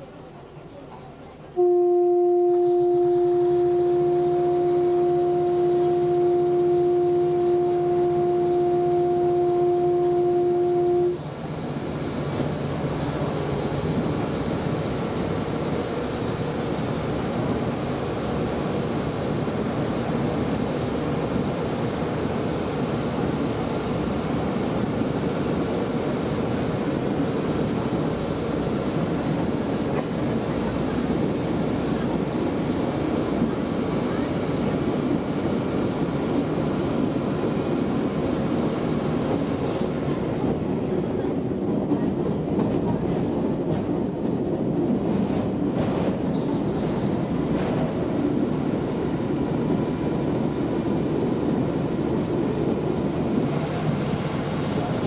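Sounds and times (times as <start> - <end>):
diesel railbus rumbling on track: 0.0 - 55.0
train horn long note: 1.6 - 11.2.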